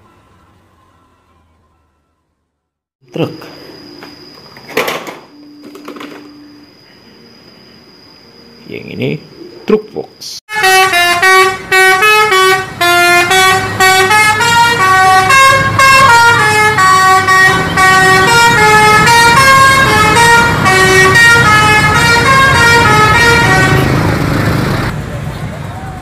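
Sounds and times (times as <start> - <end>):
musical bus horn tune: 0.0 - 2.4, 10.5 - 24.3
low traffic rumble: 10.8 - 26.0.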